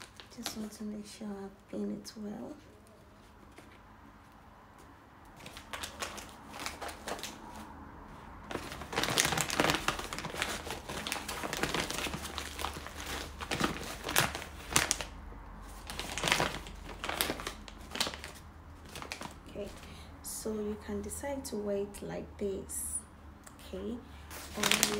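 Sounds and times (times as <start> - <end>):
stiff fabric crinkling: 5.4 - 19.9, 24.3 - 24.9.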